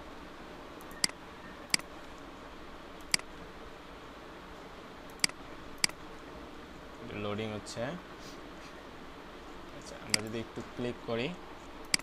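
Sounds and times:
low steady hiss: 0.0s - 12.0s
computer mouse clicks: 3.0s - 3.3s, 5.1s - 6.0s, 10.1s - 10.4s.

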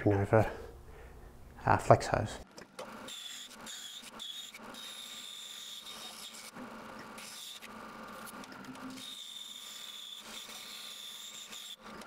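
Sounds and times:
bandsaw cutting plywood: 2.8s - 12.0s.

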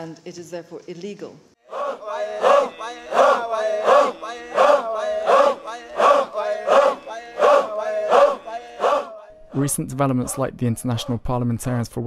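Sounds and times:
men chanting in rhythm: 1.6s - 11.2s.

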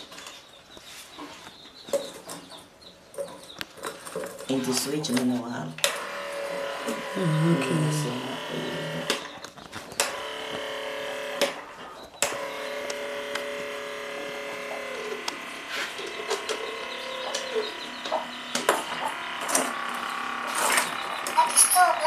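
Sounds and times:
small electric motor whining: 5.8s - 22.0s.

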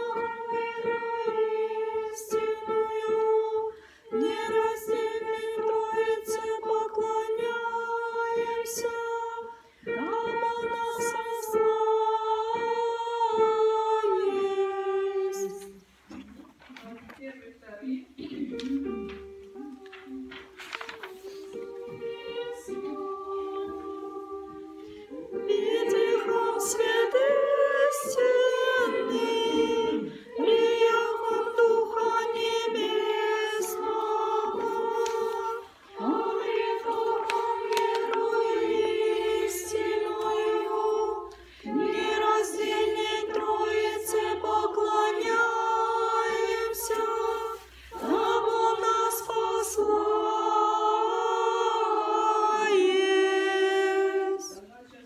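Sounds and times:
women singing unaccompanied chant: 0.0s - 15.8s, 18.1s - 55.0s.

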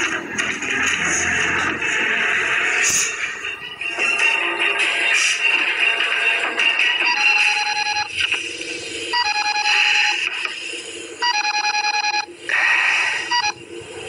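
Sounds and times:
mobile phone ringtone trilling: 7.0s - 8.2s, 9.1s - 10.2s, 11.2s - 12.3s, 13.2s - 13.6s.

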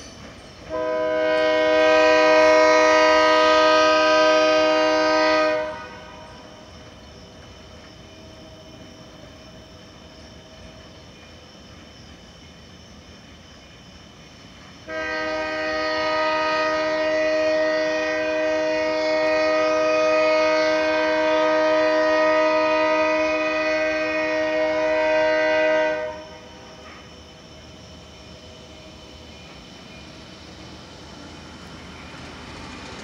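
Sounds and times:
locomotive air horn blast: 0.7s - 6.5s, 14.9s - 26.5s.

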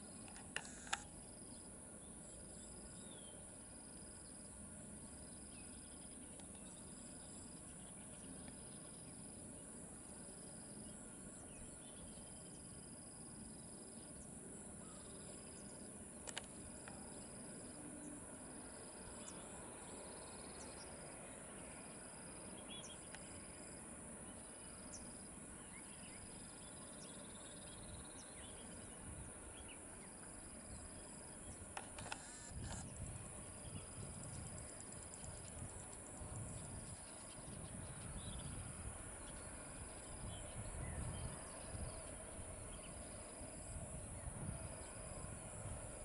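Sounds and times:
insects trilling: 0.0s - 46.0s
repeating insect chirp: 0.0s - 46.0s
sharp click: 16.2s - 17.0s, 31.8s - 32.9s.

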